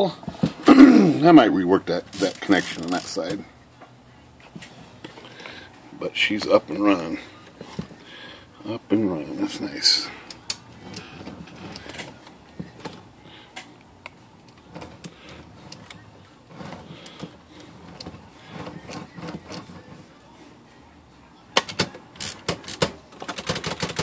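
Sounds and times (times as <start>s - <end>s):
typewriter carriage clicking and rattling: 21.6s - 24.0s.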